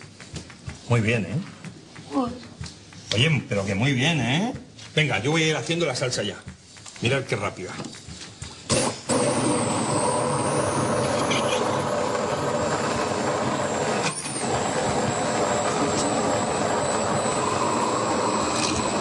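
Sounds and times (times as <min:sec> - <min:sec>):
immersion blender whining: 0:08.7 - 0:19.0.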